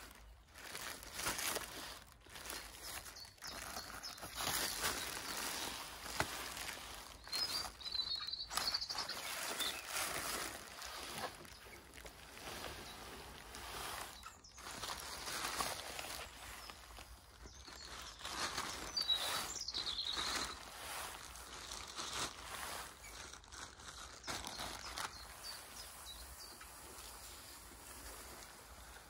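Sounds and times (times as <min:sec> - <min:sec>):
leafy branches scraping cardboard: 0:00.0 - 0:29.0
bird chirping: 0:02.3 - 0:20.7, 0:24.2 - 0:27.6.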